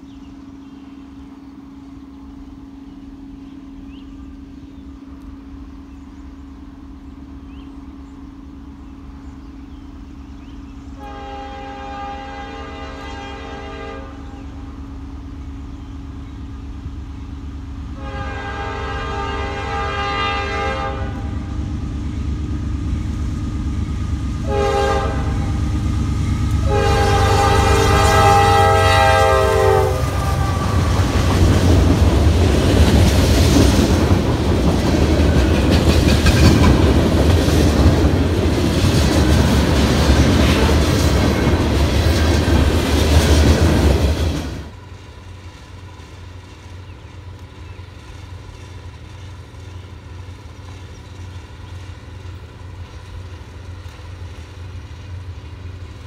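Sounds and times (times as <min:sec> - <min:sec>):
locomotive engine rumble: 0:00.0 - 0:56.0
locomotive air horn: 0:11.0 - 0:14.6, 0:17.9 - 0:21.6, 0:24.4 - 0:25.7, 0:26.5 - 0:31.4
train wheels clacking on rails: 0:30.0 - 0:56.0.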